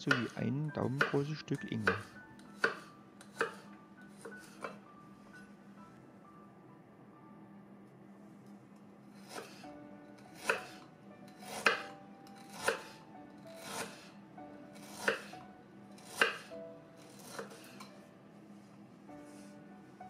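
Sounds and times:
knife striking cutting board: 0:11.4 - 0:13.0, 0:14.9 - 0:15.3, 0:16.0 - 0:16.5.

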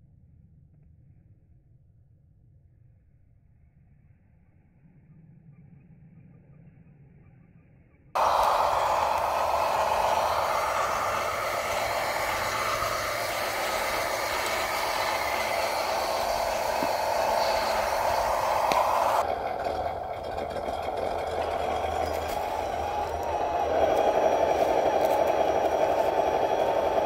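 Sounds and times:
rc truck motors whining: 0:08.2 - 0:27.0.

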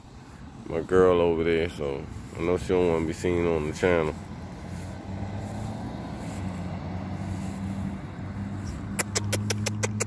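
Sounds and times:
fast sharp clicks: 0:09.0 - 0:10.0.

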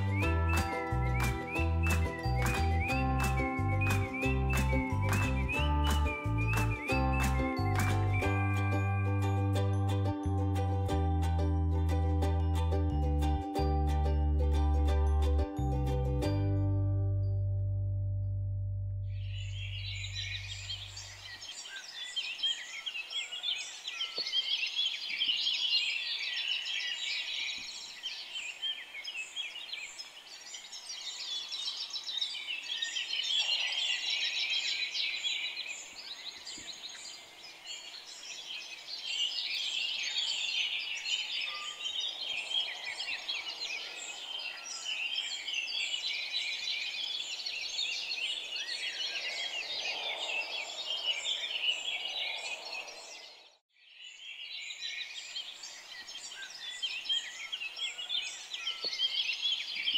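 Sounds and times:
small birds chirping: 0:00.0 - 0:09.4, 0:19.1 - 0:59.9.

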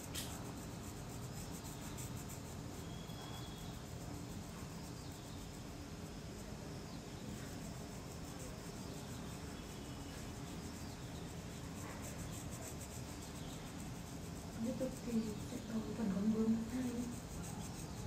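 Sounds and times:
steady background hiss: 0:00.0 - 0:18.0
felt-tip marker scratching on paper: 0:07.3 - 0:18.0.

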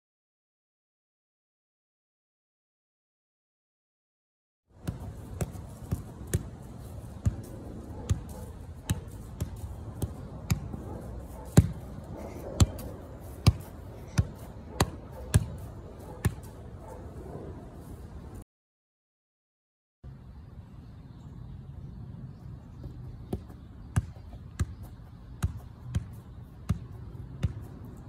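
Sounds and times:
steady outdoor hiss: 0:04.7 - 0:18.4, 0:20.0 - 0:28.0
ball being kicked thumps: 0:04.8 - 0:07.5, 0:08.1 - 0:10.8, 0:11.4 - 0:12.0, 0:12.6 - 0:16.6.

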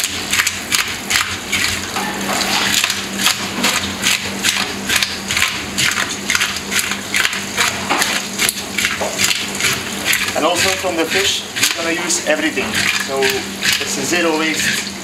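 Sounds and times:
tap water running into sink: 0:05.8 - 0:15.0
fish scales being scraped: 0:08.4 - 0:15.0.

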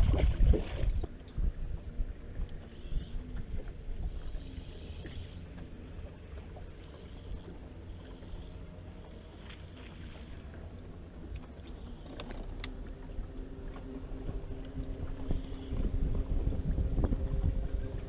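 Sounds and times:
wind and water rumble: 0:00.0 - 0:18.0
electric trolling motor humming: 0:00.9 - 0:18.0.

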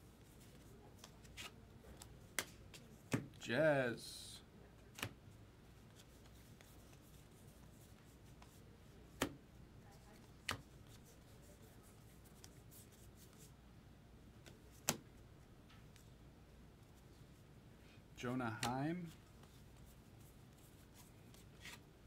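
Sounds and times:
handling of cards: 0:00.2 - 0:03.3, 0:18.5 - 0:21.9.

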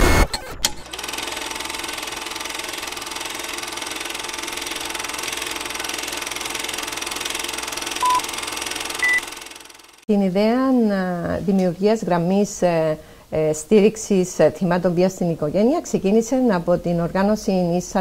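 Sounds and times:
film projector clatter: 0:00.7 - 0:10.1
countdown beep: 0:08.0 - 0:08.2, 0:09.0 - 0:09.3.

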